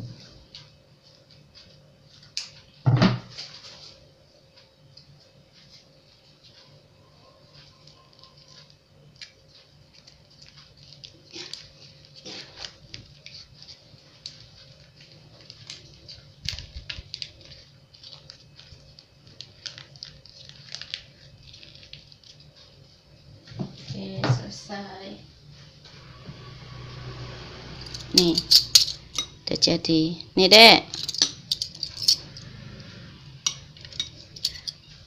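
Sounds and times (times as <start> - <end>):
firm knock: 2.9 - 3.3
plastic sachets crinkling: 10.0 - 22.6.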